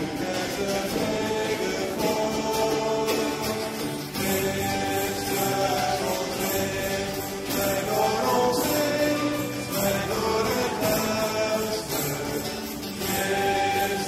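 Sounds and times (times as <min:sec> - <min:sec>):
group singing a hymn: 0:00.0 - 0:14.0
instrumental accompaniment: 0:00.0 - 0:14.0.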